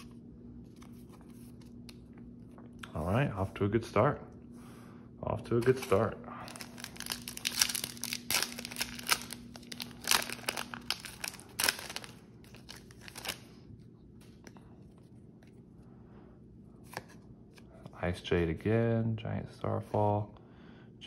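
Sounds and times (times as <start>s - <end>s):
cards rustling: 0.0s - 2.2s, 5.6s - 13.6s
foil wrapper crinkling: 5.6s - 13.6s.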